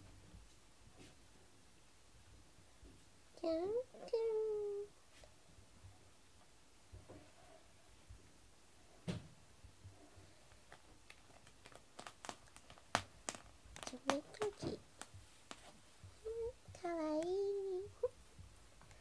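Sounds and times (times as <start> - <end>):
soft thump: 9.0 - 9.4.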